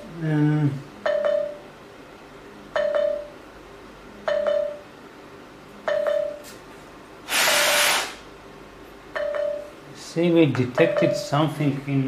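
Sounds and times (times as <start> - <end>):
loud burst of hiss: 7.3 - 8.3.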